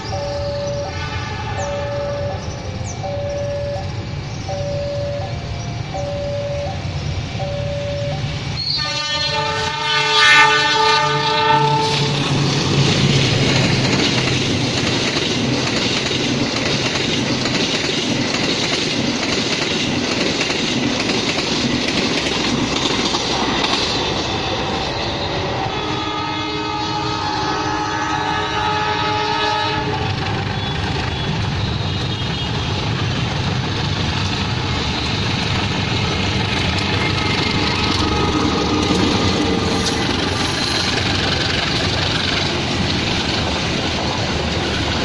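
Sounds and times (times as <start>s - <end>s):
steady multi-tone sound: 0.0s - 1.1s, 1.7s - 8.6s
level-crossing warning bell: 0.0s - 8.8s
train passing with rumble: 0.0s - 45.0s
locomotive horn: 0.1s - 2.4s, 7.6s - 12.6s, 24.1s - 32.9s, 37.6s - 40.1s
wheels clacking over rail joints: 12.0s - 24.6s, 30.0s - 45.0s.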